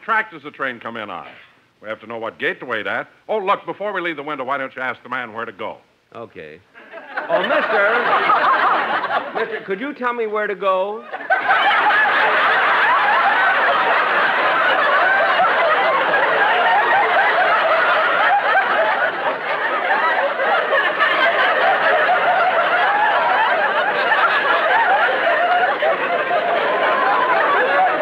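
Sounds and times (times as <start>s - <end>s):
studio audience laughing: 6.8s - 9.8s, 11.0s - 28.0s.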